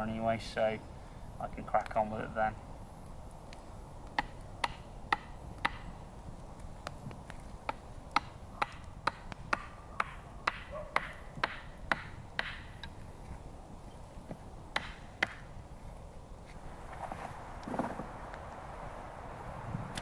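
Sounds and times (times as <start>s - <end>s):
hatchet chopping wood: 4.1s - 5.9s, 7.6s - 12.9s, 14.7s - 15.5s.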